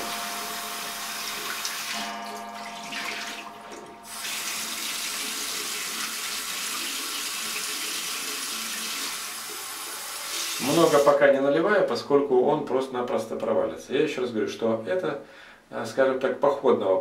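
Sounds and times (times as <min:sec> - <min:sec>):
water running from a tap: 0:00.0 - 0:11.2.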